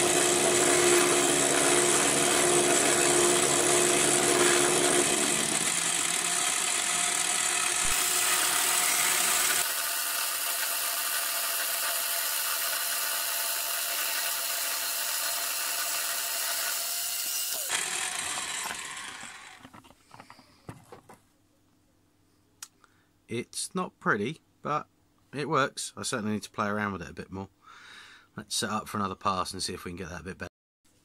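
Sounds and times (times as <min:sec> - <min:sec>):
end mill cutting metal: 0:00.0 - 0:19.6
drill motors whining: 0:00.0 - 0:19.8.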